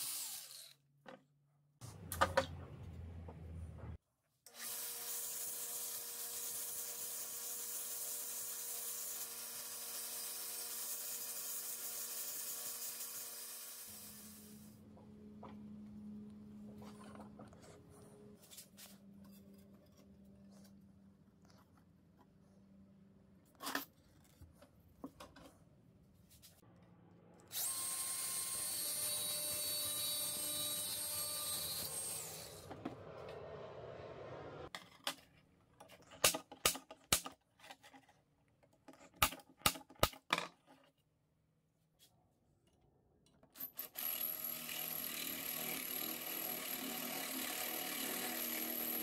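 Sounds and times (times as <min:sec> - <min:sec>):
electric drill boring: 0:00.0 - 0:00.8, 0:27.5 - 0:32.7, 0:43.8 - 0:49.0.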